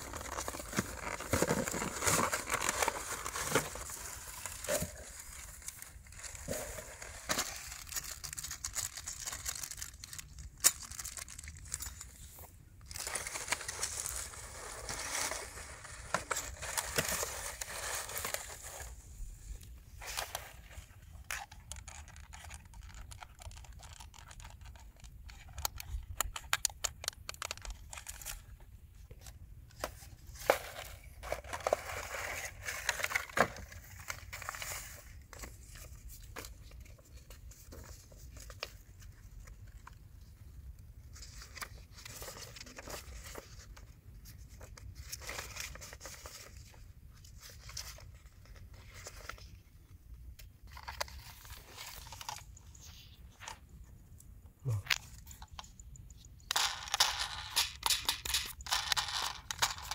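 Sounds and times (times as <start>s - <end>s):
plastic and paper rustling: 0.0s - 28.6s, 29.2s - 53.7s
small sharp plastic clicks: 21.7s - 27.9s.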